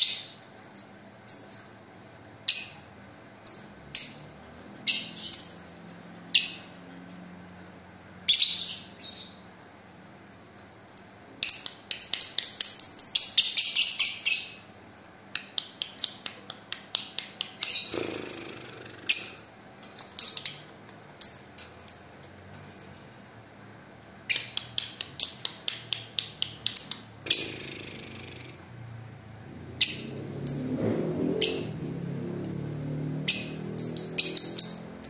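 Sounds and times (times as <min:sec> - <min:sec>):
lovebird chirping: 0:02.5 - 0:06.7, 0:08.3 - 0:09.4, 0:11.0 - 0:14.8, 0:15.4 - 0:22.2, 0:24.3 - 0:28.7, 0:29.8 - 0:30.8, 0:32.4 - 0:35.0.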